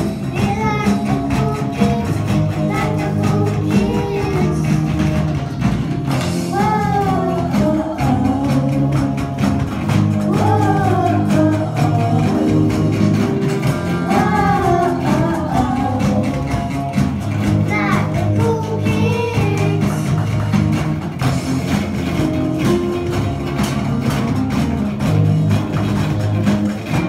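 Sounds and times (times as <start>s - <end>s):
girls singing: 0.0s - 5.3s, 6.1s - 20.3s
rock band playing: 0.0s - 27.0s.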